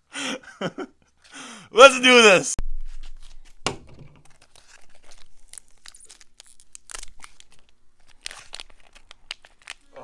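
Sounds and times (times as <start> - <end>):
plastic packaging tearing and crinkling: 4.2 - 10.0.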